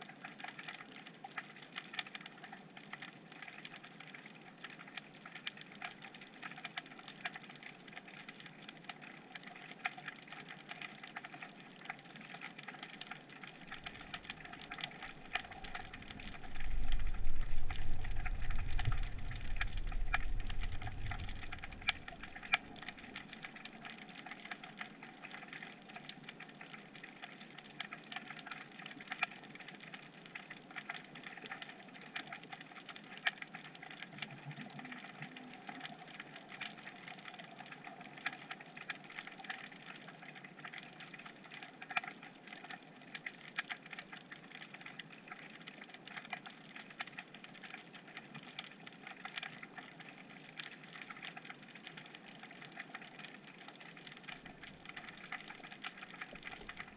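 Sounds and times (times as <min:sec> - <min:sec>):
crackle of small sharp clicks underwater: 0:00.0 - 0:56.9
low underwater rumble: 0:13.6 - 0:23.8.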